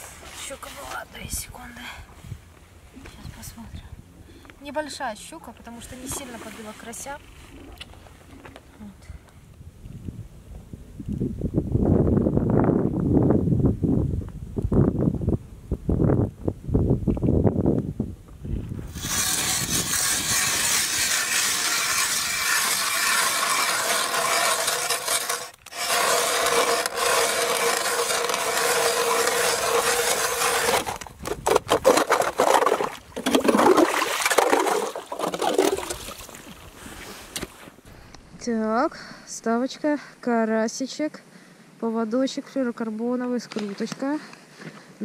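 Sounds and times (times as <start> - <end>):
ice auger grinding into ice: 18.9 - 36.4.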